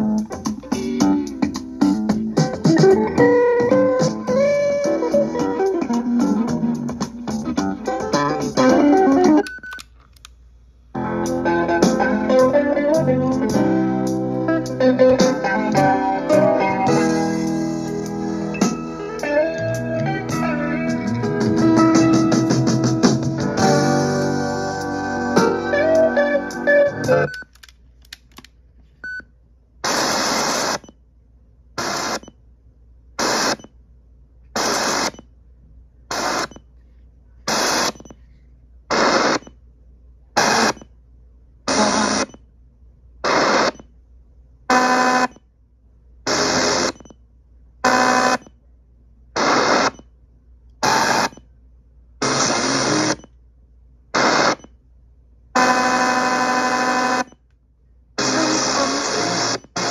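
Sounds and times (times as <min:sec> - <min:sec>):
radio static bursts: 0:29.8 - 0:30.8, 0:31.8 - 0:32.2, 0:33.2 - 0:33.6, 0:34.6 - 0:35.2, 0:36.1 - 0:36.5, 0:37.5 - 0:38.0, 0:38.9 - 0:39.4, 0:40.4 - 0:40.8, 0:41.7 - 0:42.3, 0:43.2 - 0:43.8, 0:46.3 - 0:47.0, 0:49.4 - 0:50.0, 0:50.8 - 0:51.3, 0:52.2 - 0:53.2, 0:54.2 - 0:54.6, 0:58.2 - 0:59.9
radio station snatches: 0:29.8 - 0:30.8, 0:31.8 - 0:32.2, 0:33.2 - 0:33.6, 0:34.6 - 0:35.1, 0:36.1 - 0:36.5, 0:37.5 - 0:38.0, 0:38.9 - 0:39.4, 0:40.4 - 0:40.8, 0:41.7 - 0:42.3, 0:43.2 - 0:43.8, 0:49.4 - 0:50.0, 0:50.8 - 0:51.3, 0:52.2 - 0:53.2, 0:54.2 - 0:54.6, 0:58.2 - 0:59.9.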